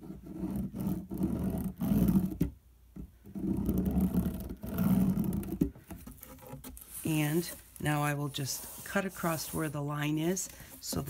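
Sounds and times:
pen rubbing on cardboard: 6.2s - 11.0s.

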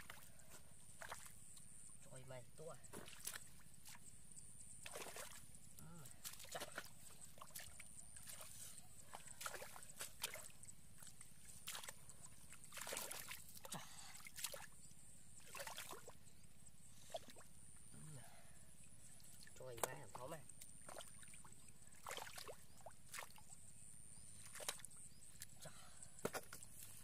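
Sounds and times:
hands splashing in muddy water: 4.8s - 5.4s, 6.1s - 14.7s, 15.4s - 16.1s, 20.8s - 23.4s, 24.4s - 24.9s.

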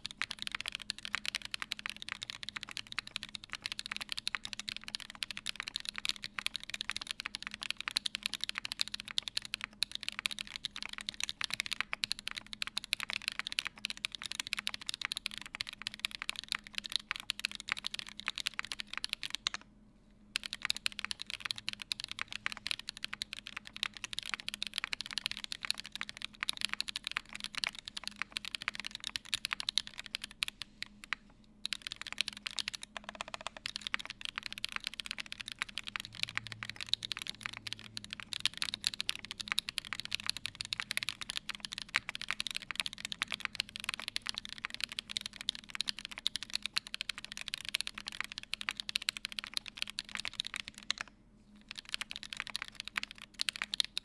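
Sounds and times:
mechanical keyboard typing: 0.0s - 19.6s, 20.4s - 54.0s.

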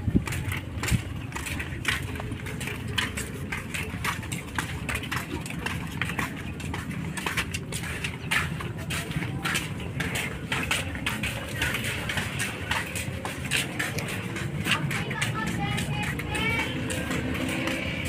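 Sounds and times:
footsteps in flip-flops on concrete: 0.0s - 18.0s.

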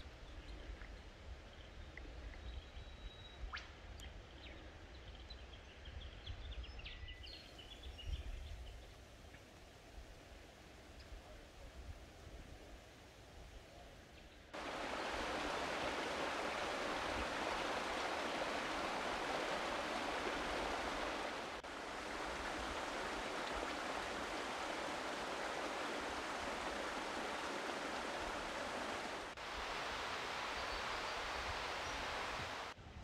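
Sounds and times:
mountain creek rushing: 14.6s - 32.8s.

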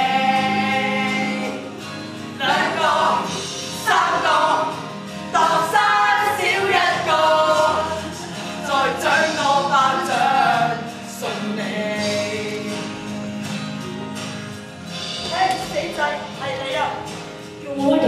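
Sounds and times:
voices singing together: 0.0s - 14.2s.

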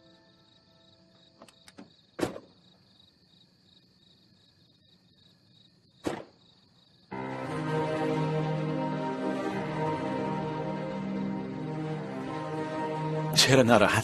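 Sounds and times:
music: 0.0s - 1.2s, 7.1s - 14.0s.

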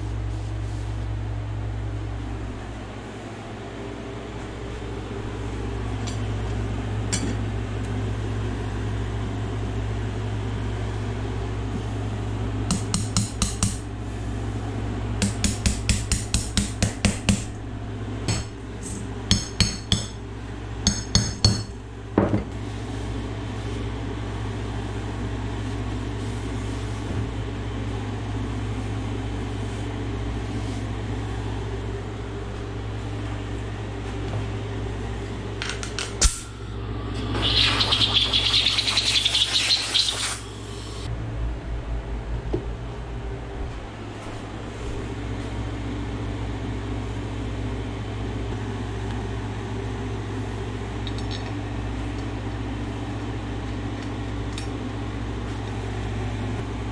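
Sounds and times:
steady low hum: 0.0s - 56.9s
hammer striking metal: 19.3s - 20.2s, 35.7s - 36.6s.

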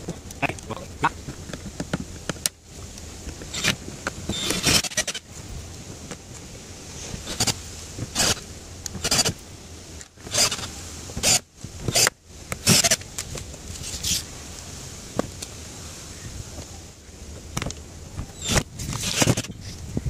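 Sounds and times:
cordless drill whirring: 3.5s - 5.2s, 7.2s - 7.6s, 8.2s - 8.4s, 9.0s - 9.4s, 10.3s - 13.0s, 18.4s - 19.6s.

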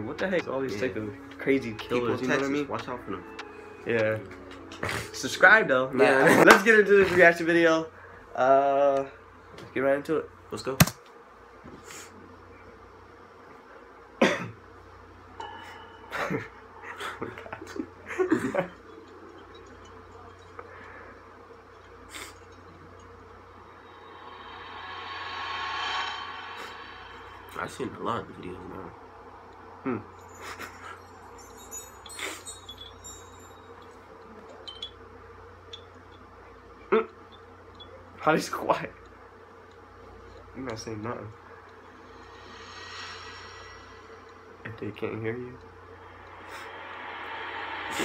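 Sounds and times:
steady low hum: 0.0s - 48.0s
person coughing: 14.2s - 14.6s
high chime-like tones: 15.4s - 17.8s, 30.0s - 35.0s
soft rush: 23.4s - 29.6s, 41.4s - 48.0s.

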